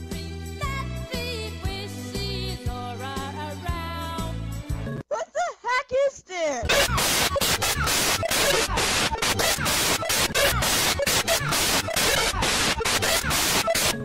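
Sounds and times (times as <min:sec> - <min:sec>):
harsh distorted static noise: 0:06.7 - 0:14.0.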